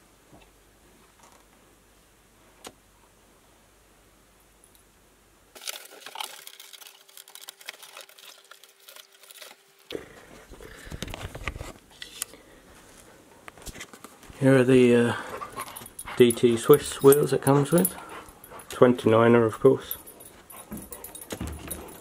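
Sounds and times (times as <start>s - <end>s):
cardboard rustling and scraping: 10.2s - 12.2s.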